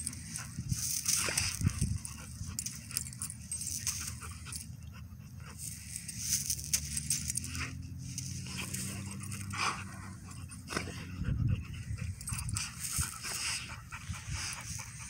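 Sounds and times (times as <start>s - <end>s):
dogs growling: 0.0s - 15.0s
scuffling on the ground: 5.6s - 9.9s.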